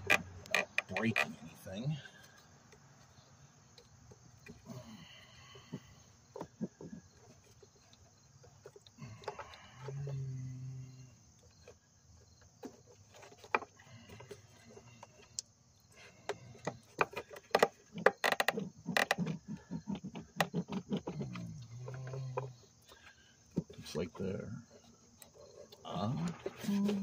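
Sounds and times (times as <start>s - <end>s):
plastic clicks creaks and knocks: 0.0s - 1.4s, 12.6s - 23.8s.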